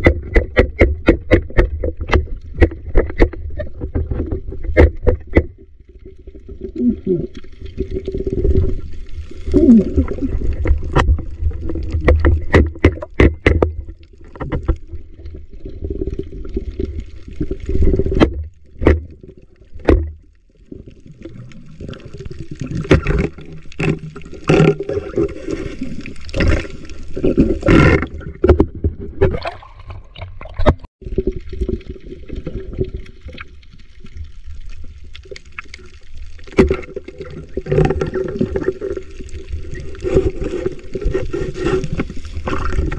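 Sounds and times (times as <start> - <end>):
sharp clicks and knocks: 0.0 - 5.6
muffled underwater water movement: 0.0 - 42.9.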